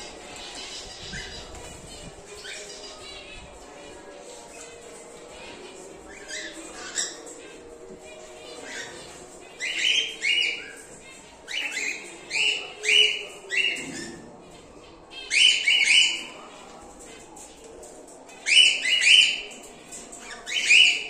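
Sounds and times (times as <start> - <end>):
cockatiels screeching: 5.4 - 14.2, 15.1 - 16.3, 18.4 - 19.6, 20.2 - 21.0.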